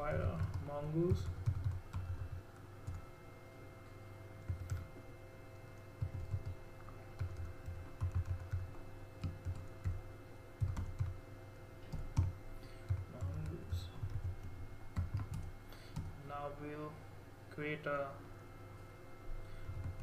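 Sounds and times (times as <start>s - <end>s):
computer keyboard typing: 0.0s - 3.0s, 4.4s - 4.9s, 6.0s - 6.6s, 7.2s - 10.0s, 10.6s - 11.2s, 11.9s - 16.1s.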